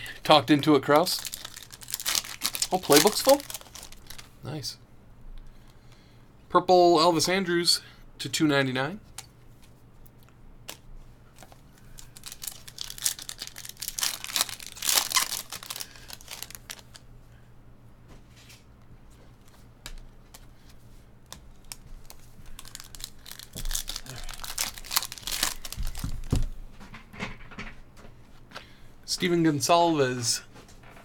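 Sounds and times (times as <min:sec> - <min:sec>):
foil wrapper tearing and crinkling: 0:00.9 - 0:04.3, 0:11.4 - 0:17.0, 0:21.6 - 0:26.4.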